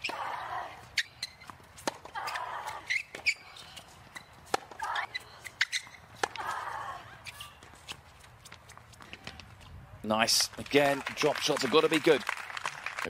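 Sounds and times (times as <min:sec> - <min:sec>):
racket striking ball: 0:01.8 - 0:02.2
woman grunting: 0:06.4 - 0:07.2.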